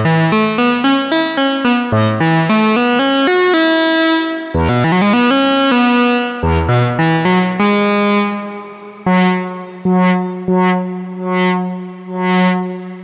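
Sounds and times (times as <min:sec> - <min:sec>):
buzzy synthesizer lead notes: 0:00.0 - 0:13.0.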